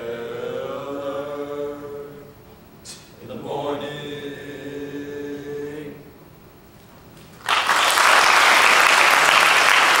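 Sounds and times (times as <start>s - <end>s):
boys' choir singing a chord: 0.0s - 2.4s, 3.2s - 6.2s
audience applauding: 7.4s - 10.0s.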